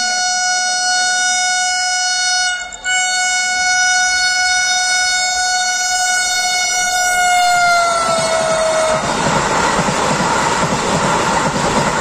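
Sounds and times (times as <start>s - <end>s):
train horn long note: 0.0s - 9.1s.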